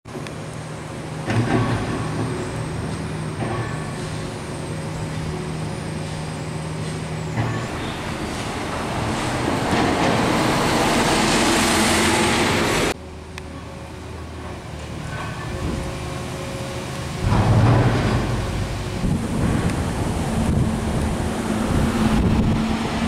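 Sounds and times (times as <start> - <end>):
bus engine hum: 0.1 - 23.0
bus passing with road noise: 0.1 - 23.0.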